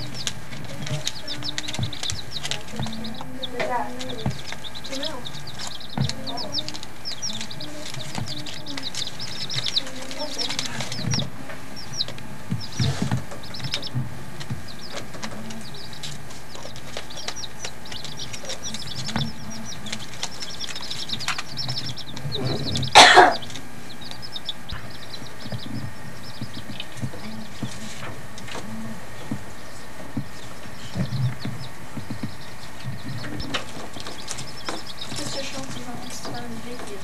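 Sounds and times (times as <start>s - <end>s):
chicks peeping: 0.0s - 37.0s.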